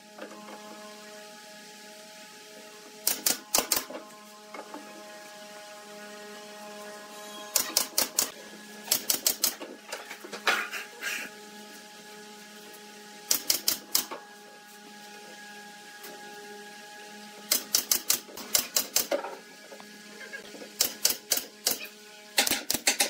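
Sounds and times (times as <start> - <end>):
pneumatic nail gun firing: 3.0 - 4.0, 7.5 - 8.3, 8.9 - 9.6, 13.3 - 14.1, 17.5 - 19.2, 20.8 - 23.0.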